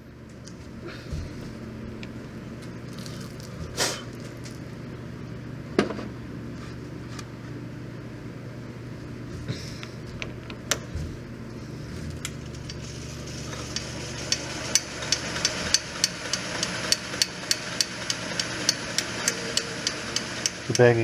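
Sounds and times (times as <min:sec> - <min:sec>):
metal lathe running: 0:12.6 - 0:21.0.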